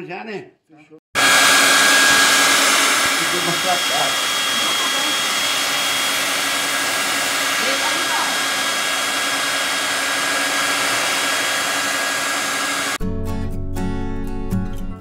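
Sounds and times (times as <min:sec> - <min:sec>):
hair dryer running: 0:01.2 - 0:13.0.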